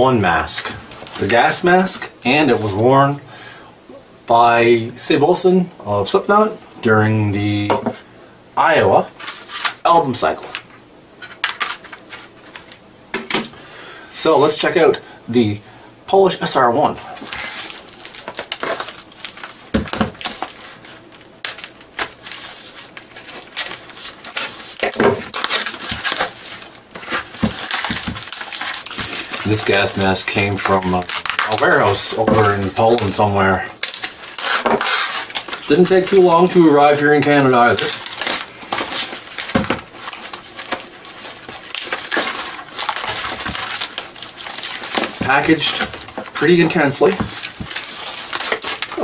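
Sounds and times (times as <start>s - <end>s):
wrapping crinkling and tearing: 9.2s - 10.7s, 17.0s - 49.0s
package thumping on table: 39.5s - 39.9s.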